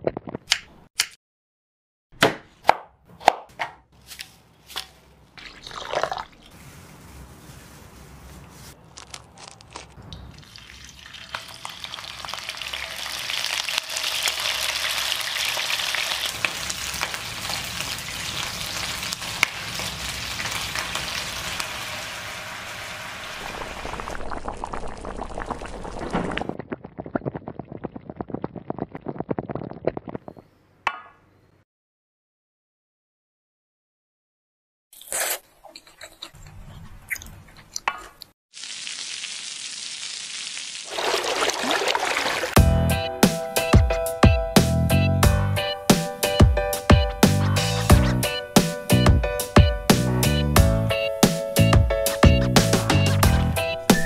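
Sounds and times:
food sizzling in oil: 10.5 - 26.1, 38.5 - 41.1.

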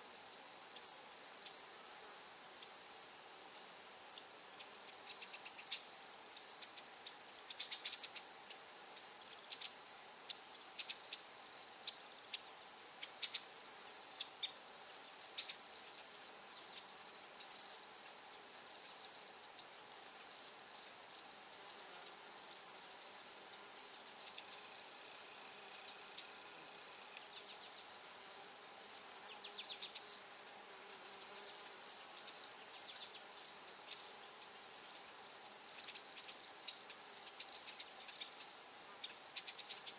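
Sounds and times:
insects trilling: 0.1 - 39.9.

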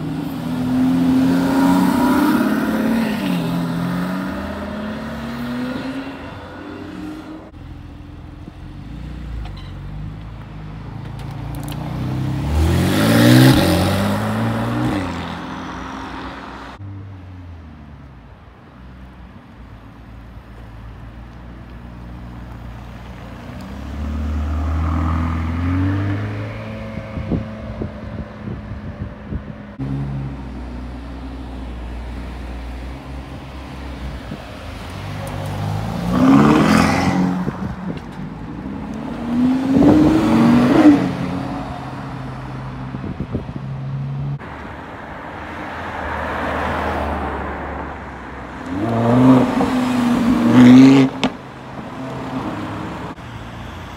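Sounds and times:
car pulling away with rising revs: 0.0 - 9.4, 11.5 - 16.8, 21.9 - 28.3, 34.6 - 43.0, 48.5 - 53.2.

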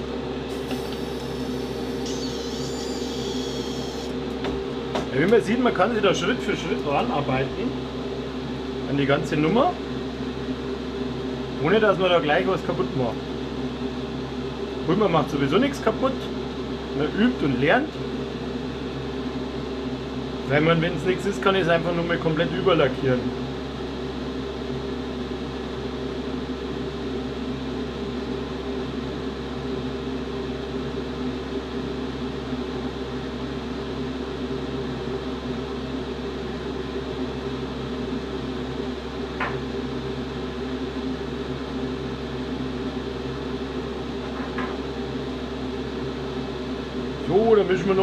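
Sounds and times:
small electric motor humming: 0.5 - 4.4.

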